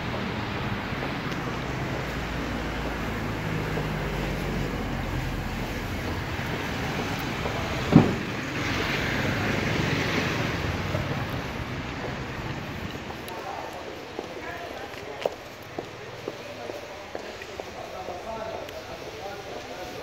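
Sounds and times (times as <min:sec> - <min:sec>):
van passing close by: 0:00.0 - 0:13.6
street traffic: 0:00.0 - 0:20.0
short sharp thump: 0:07.8 - 0:08.5.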